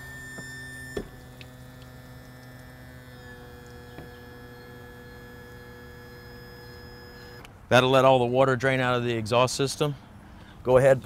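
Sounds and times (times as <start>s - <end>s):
electric motor hum: 0.0s - 7.5s.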